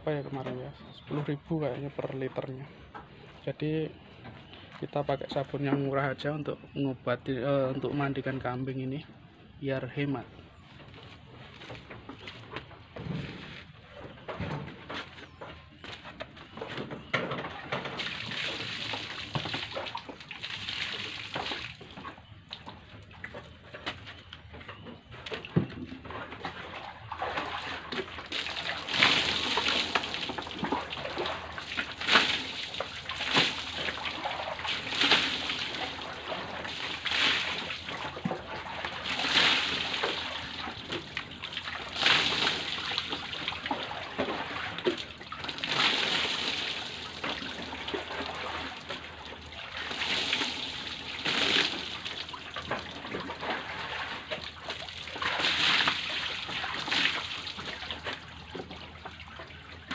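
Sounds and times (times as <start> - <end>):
water pouring and splashing: 16.7 - 59.9
water trickling: 26.4 - 59.9.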